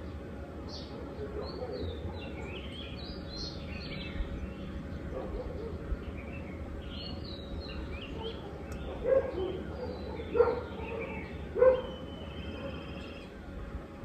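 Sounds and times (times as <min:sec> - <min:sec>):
birds chirping: 0:00.0 - 0:14.0
dog barking: 0:01.0 - 0:02.3, 0:05.1 - 0:05.8, 0:08.2 - 0:12.8.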